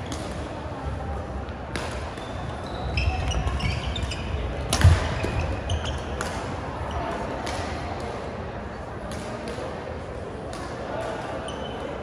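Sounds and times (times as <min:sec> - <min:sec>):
racket hitting shuttlecock: 0:01.7 - 0:02.3, 0:04.7 - 0:06.5.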